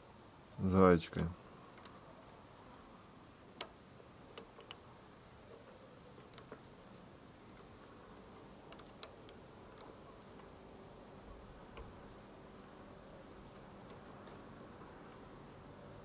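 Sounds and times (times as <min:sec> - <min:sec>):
faint metal clicks: 0:01.7 - 0:02.9, 0:03.6 - 0:04.9, 0:05.5 - 0:06.7, 0:07.5 - 0:10.6.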